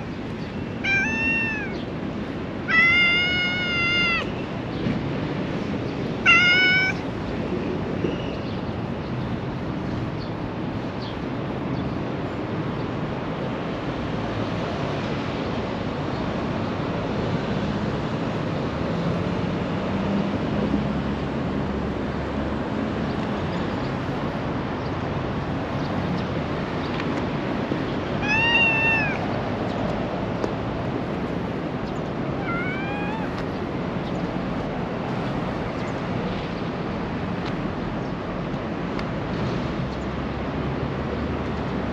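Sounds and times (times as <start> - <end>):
cat meowing: 0.8 - 1.9, 2.6 - 4.4, 6.2 - 7.1, 28.2 - 29.4, 32.4 - 33.4.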